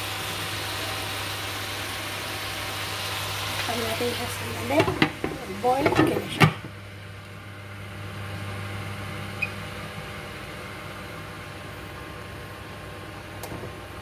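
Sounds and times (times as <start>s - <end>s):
vegetables hissing in a wok: 0.0s - 4.8s.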